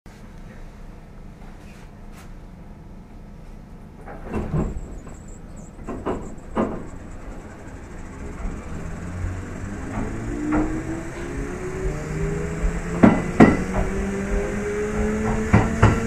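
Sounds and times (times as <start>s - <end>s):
low motor hum: 0.1s - 16.0s
sharp clunks: 4.0s - 8.9s
rising whine: 4.3s - 16.0s.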